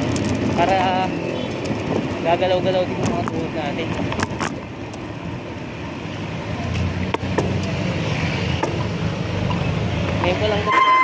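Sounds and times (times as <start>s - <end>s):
bicycle knocks and rattles: 0.0s - 5.1s
traffic noise: 0.0s - 11.0s.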